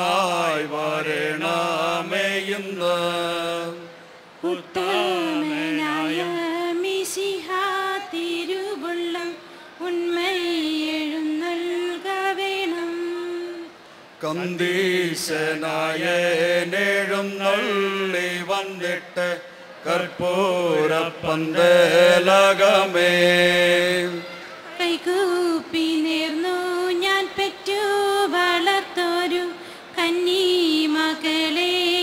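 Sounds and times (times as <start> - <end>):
group singing into microphones: 0.0 - 32.0.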